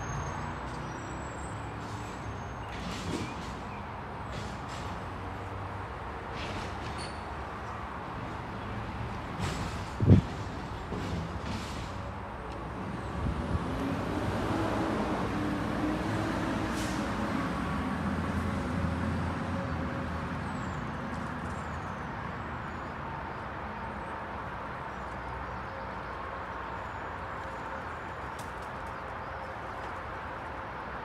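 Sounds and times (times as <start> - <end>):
vehicle passing: 12.6 - 21.0.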